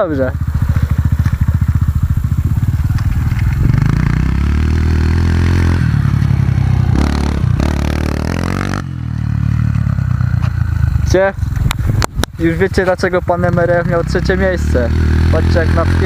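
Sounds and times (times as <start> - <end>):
scrabbling rush: 0.0 - 7.9
dirt bike engine revving past: 0.0 - 11.6, 13.1 - 16.0
dirt bike idling: 0.0 - 16.0.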